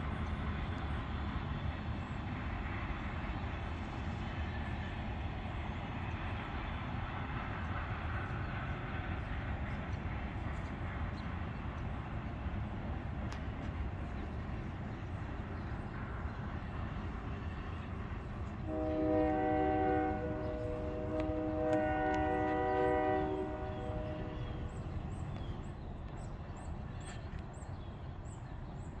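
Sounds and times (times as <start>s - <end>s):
train rumbling: 0.0s - 29.0s
locomotive air horn blasts: 18.6s - 24.6s.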